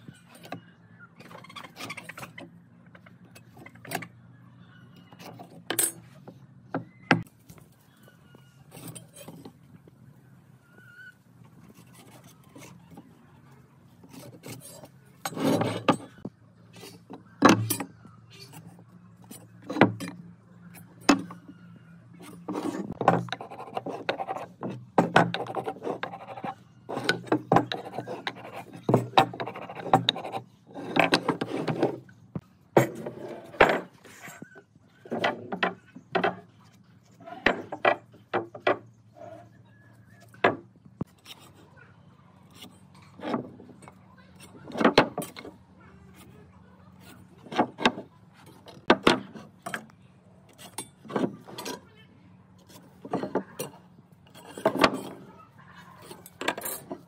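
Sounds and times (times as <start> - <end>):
chisel scraping wood: 14.0 - 20.2, 22.2 - 32.1, 32.8 - 41.8, 42.5 - 49.9, 52.6 - 57.0.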